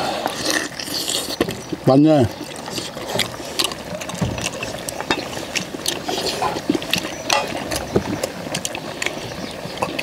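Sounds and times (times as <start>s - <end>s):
chewing: 0.0s - 10.0s.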